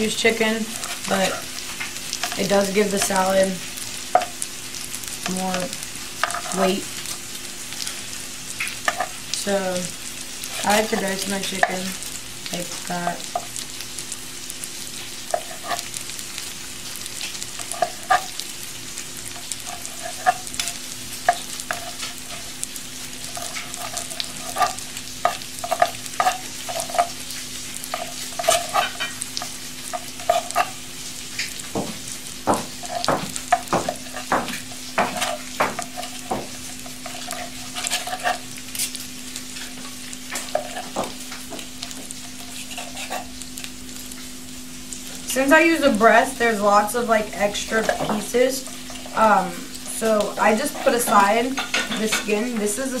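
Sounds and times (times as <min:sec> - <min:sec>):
meat frying sizzle: 0:00.0 - 0:53.0
knife chopping on cutting board: 0:31.7 - 0:36.5.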